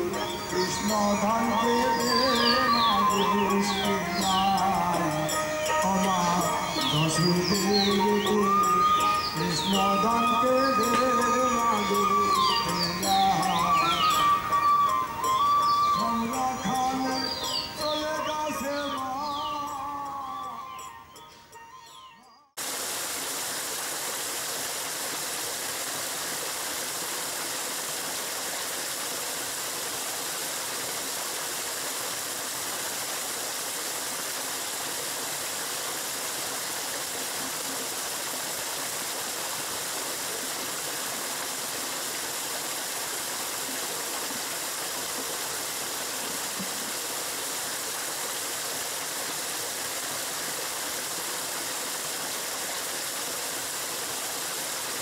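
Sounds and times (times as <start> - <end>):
water gushing from pipe: 22.6 - 55.0.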